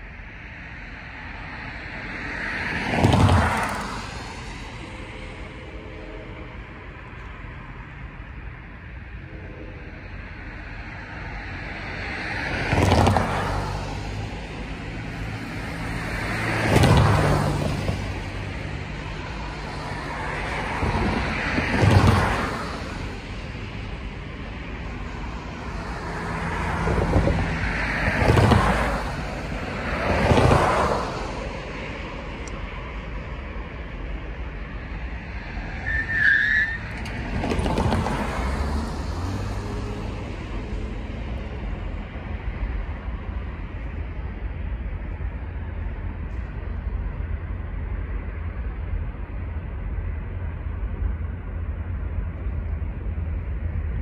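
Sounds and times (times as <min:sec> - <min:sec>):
road vehicles passing by: 0:00.0 - 0:54.0.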